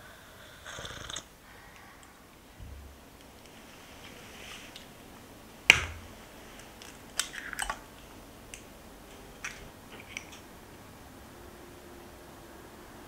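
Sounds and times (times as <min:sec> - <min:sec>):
egg shell crackling: 0:05.6 - 0:08.7
egg shell knock: 0:05.7 - 0:06.1.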